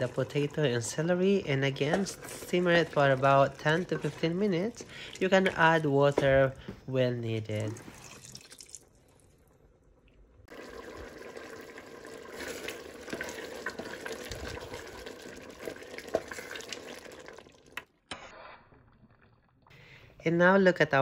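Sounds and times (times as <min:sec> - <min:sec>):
spoon stirring stew: 0:00.0 - 0:06.6, 0:10.6 - 0:17.4
stew bubbling in a pot: 0:00.0 - 0:06.6, 0:10.2 - 0:18.0.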